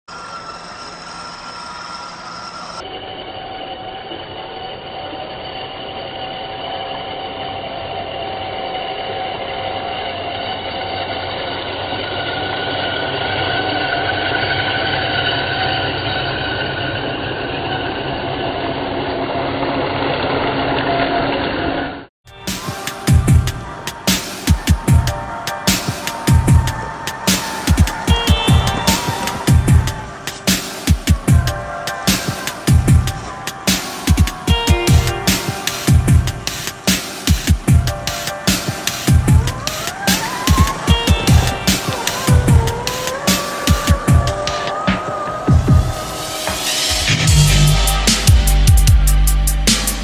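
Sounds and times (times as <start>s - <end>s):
toy car motors whining: 0.1s - 2.8s.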